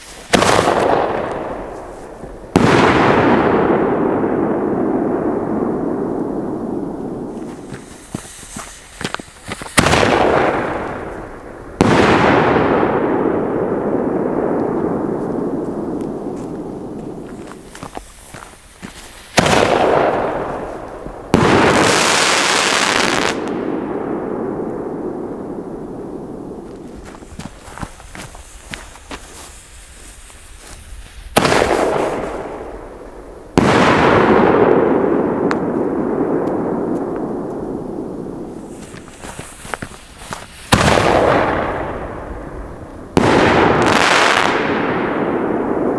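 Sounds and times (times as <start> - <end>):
small firework pops and crackles: 0.0 - 3.4, 7.2 - 12.6, 14.5 - 23.7, 26.6 - 34.7, 35.4 - 45.2
loud firework bangs with echo: 0.0 - 29.0, 31.3 - 45.9.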